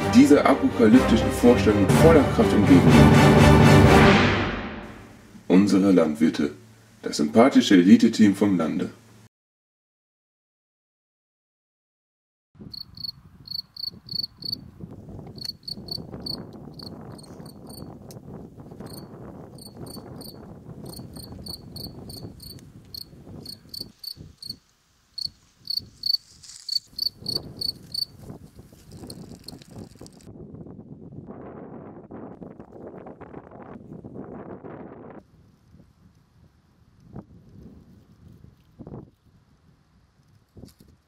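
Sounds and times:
wind rumble on microphone: 0:12.6 - 0:24.6, 0:25.2 - 0:41.0
crickets chirping: 0:12.7 - 0:14.7, 0:15.3 - 0:17.9, 0:18.8 - 0:29.7.

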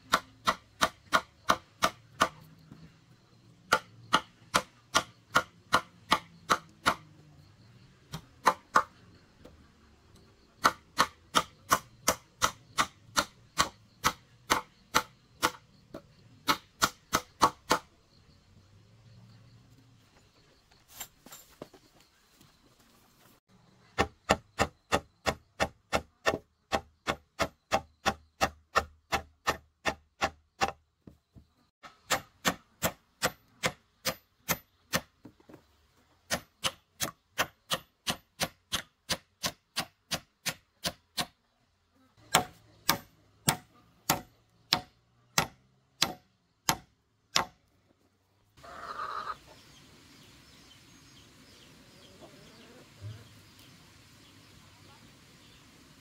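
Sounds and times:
hammer driving nails into wood: 0:03.7 - 0:07.1, 0:42.3 - 0:47.6.

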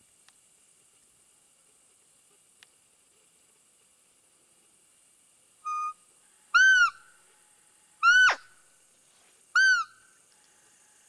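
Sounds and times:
squeaky deer call peeps: 0:05.6 - 0:06.0, 0:06.6 - 0:07.0, 0:08.0 - 0:08.5, 0:09.6 - 0:10.0.

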